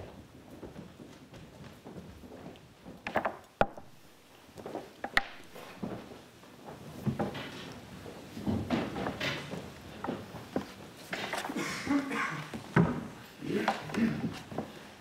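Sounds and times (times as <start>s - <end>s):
shuffling: 0.0s - 3.2s, 3.9s - 15.0s
chairs being pulled out: 4.7s - 15.0s.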